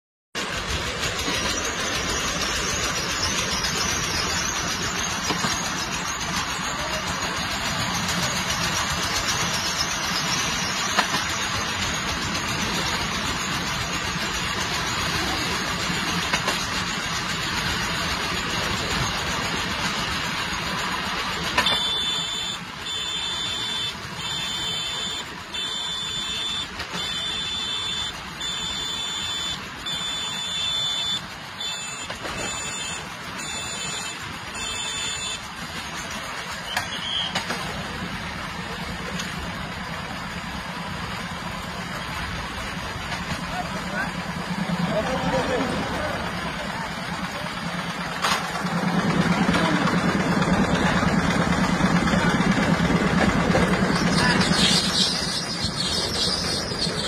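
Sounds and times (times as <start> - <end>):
train running on track: 0.4 - 57.0
high beep: 21.6 - 35.4.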